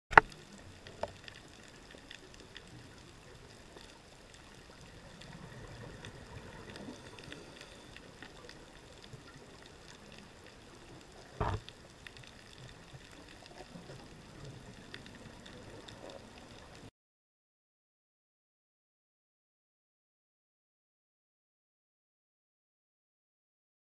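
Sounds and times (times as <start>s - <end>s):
faint crackling clicks: 0.1s - 16.9s
low steady underwater wash: 0.1s - 16.9s.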